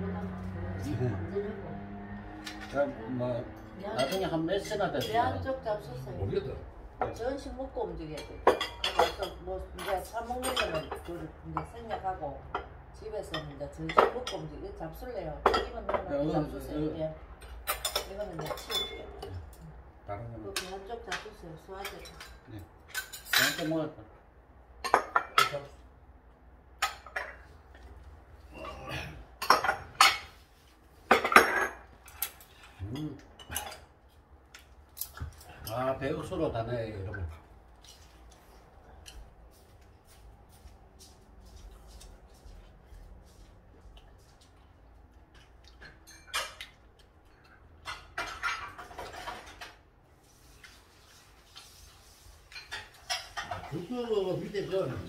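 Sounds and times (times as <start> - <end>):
dishes and cutlery clattering: 3.9 - 5.4, 8.1 - 11.8, 17.4 - 19.5, 20.5 - 23.9, 24.8 - 25.8, 26.8 - 27.7, 28.6 - 30.4, 31.1 - 34.1, 45.3 - 49.9, 52.5 - 54.4
tableware clinking on wooden table: 8.2 - 11.7, 17.5 - 19.3, 24.8 - 25.7, 29.4 - 30.4, 31.1 - 32.8, 47.8 - 49.8.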